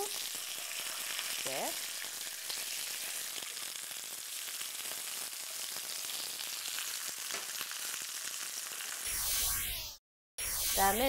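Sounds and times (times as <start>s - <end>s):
meat sizzling in a frying pan: 0.0s - 9.1s.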